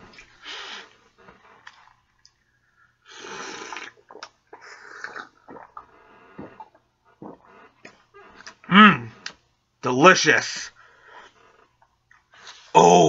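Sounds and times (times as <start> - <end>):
person sipping from glass: 3.1 - 9.4.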